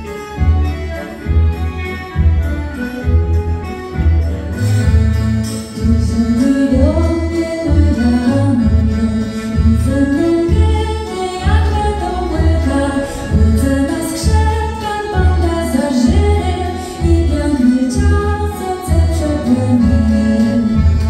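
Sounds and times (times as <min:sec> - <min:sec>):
singing with instrumental accompaniment: 0:00.0 - 0:21.0.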